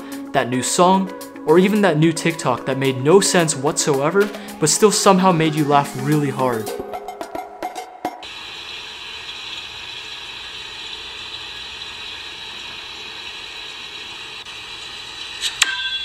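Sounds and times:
steady hissing noise: 8.2 - 15.6.

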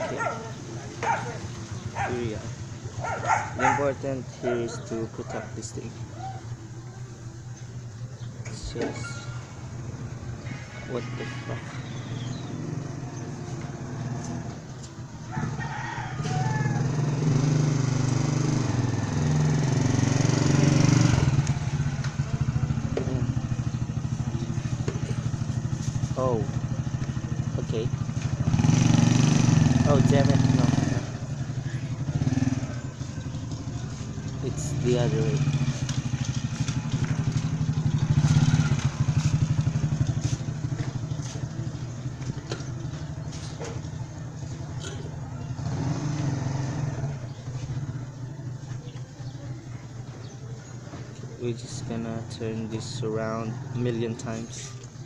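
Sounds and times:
small engine running: 16.8 - 47.0.

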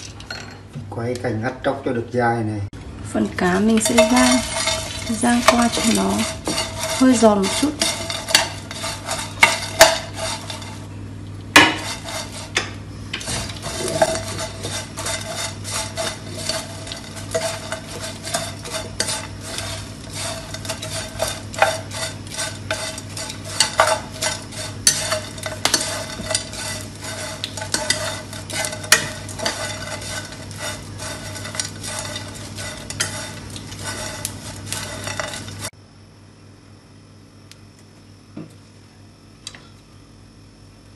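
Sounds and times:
chopsticks scraping and clicking in pan: 3.4 - 10.9, 11.5 - 35.7.

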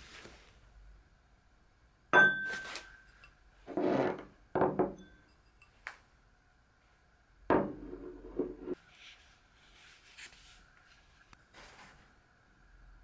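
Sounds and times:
bowl scraping on tabletop: 3.7 - 4.3
bowls knocking on tabletop: 4.6 - 5.1.

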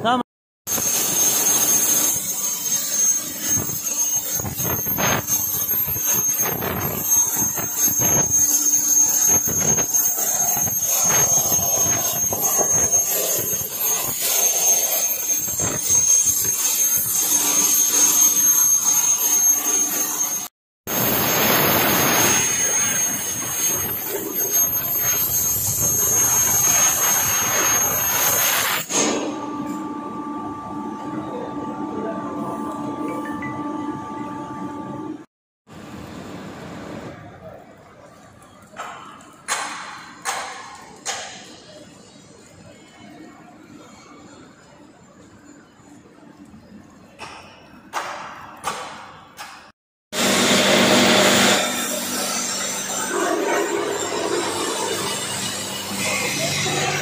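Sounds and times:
plasma torch arc hissing: 20.9 - 29.3
low machine hum: 29.3 - 35.2.

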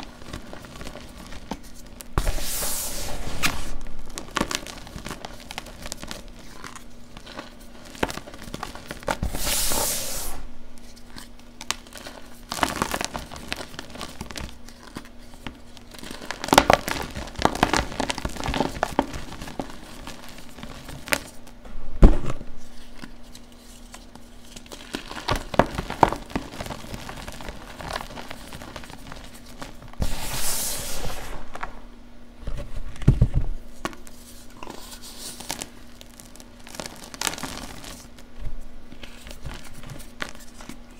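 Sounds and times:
soft powdery hisses: 2.2 - 3.8, 9.2 - 10.6, 30.0 - 31.6
chalk crunching and crackling: 33.8 - 38.3.

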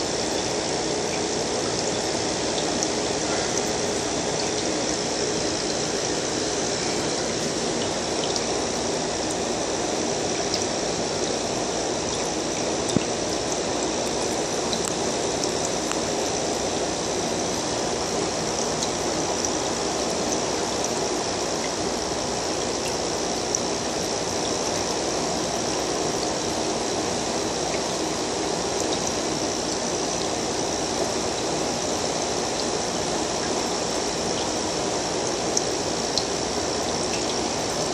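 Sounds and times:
aquarium water trickling: 0.0 - 37.9.

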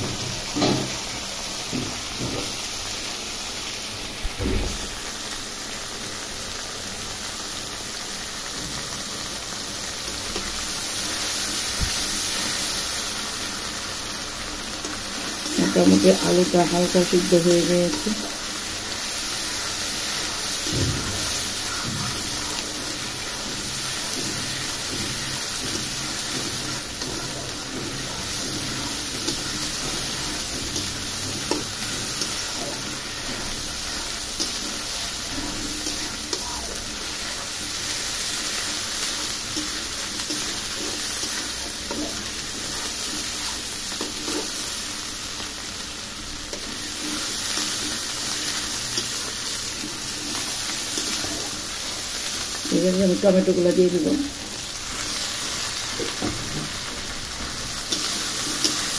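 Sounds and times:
potatoes sizzling in oil: 0.0 - 58.9
spatula stirring and scraping: 17.9 - 52.7.

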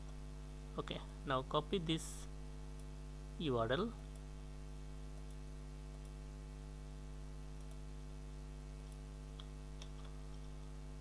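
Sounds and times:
electrical mains hum: 0.0 - 11.0
computer mouse clicks: 5.1 - 6.2, 7.5 - 7.9, 8.8 - 10.6.

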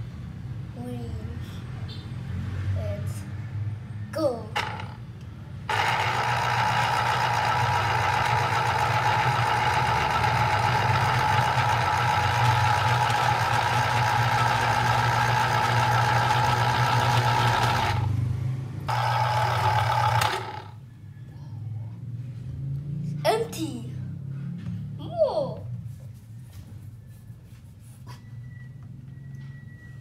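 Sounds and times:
citrus juicer motor humming: 4.6 - 5.0, 5.7 - 18.2, 18.9 - 20.8.

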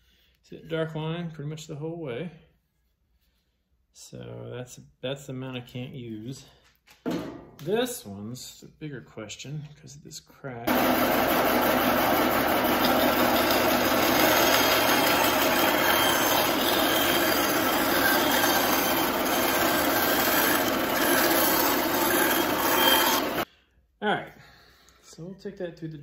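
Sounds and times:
bandsaw cutting wood: 10.7 - 23.4.

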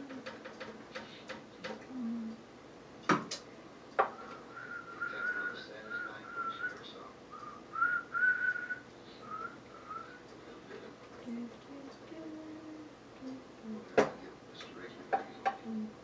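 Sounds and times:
person whistling a tune: 4.2 - 10.2.

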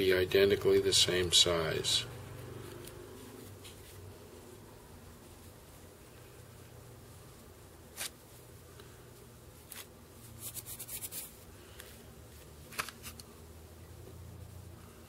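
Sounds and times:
low steady hum: 0.0 - 15.0
crisp rustling ticks of trimming: 2.3 - 4.0.

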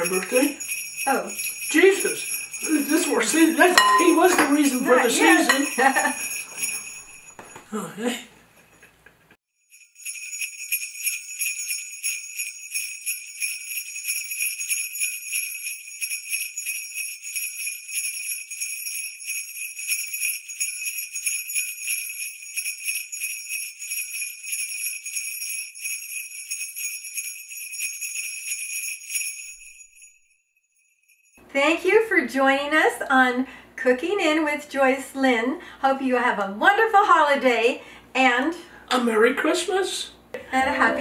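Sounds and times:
jingle bells shaken: 0.0 - 7.6, 9.7 - 31.4, 40.6 - 41.0.

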